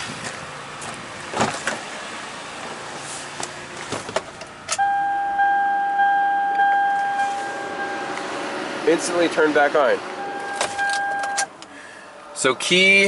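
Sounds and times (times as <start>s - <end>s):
dashboard warning chime: 4.8s - 8.1s, 10.2s - 11.5s.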